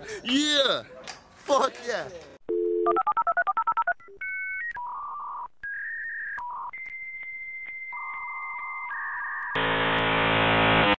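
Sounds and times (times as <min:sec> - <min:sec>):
buzzy synth chord: 0:09.6 - 0:11.0.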